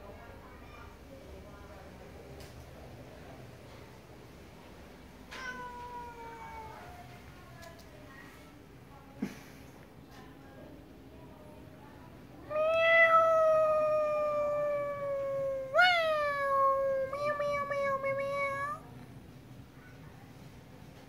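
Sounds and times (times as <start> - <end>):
cat meowing: 5.3 - 7.0, 12.5 - 18.8.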